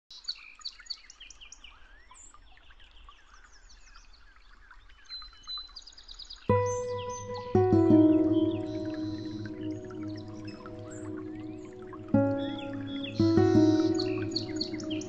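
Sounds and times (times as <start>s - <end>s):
birds chirping and singing: 6.5s - 15.0s
music: 6.5s - 15.0s.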